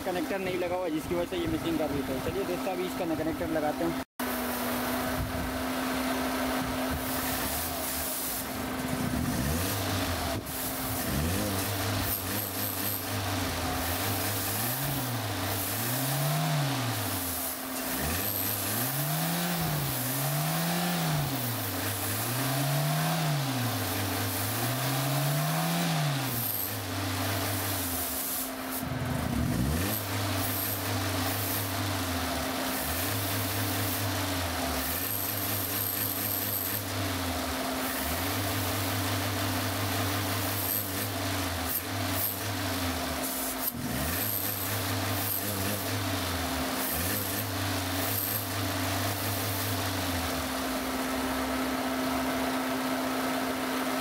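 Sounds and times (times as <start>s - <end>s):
engine revving: 0.0s - 54.0s
spray hissing: 7.0s - 8.6s, 9.6s - 28.9s.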